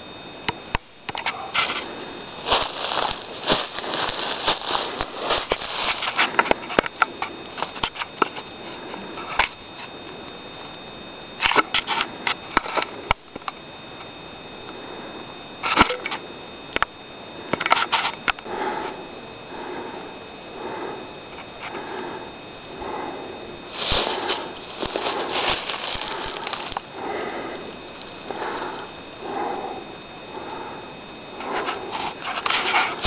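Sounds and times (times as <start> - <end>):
faint steady high tone: 0.0 - 33.0
footsteps on dry leaves: 1.4 - 8.8, 23.6 - 29.1, 31.6 - 33.0.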